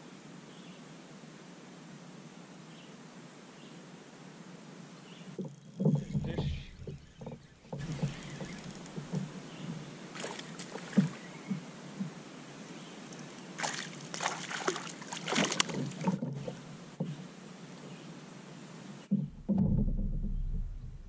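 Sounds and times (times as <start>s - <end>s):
water: 0.0s - 21.0s
knocks and clicks of gear: 5.4s - 9.8s, 19.1s - 21.0s
muffled low rumble: 19.1s - 21.0s.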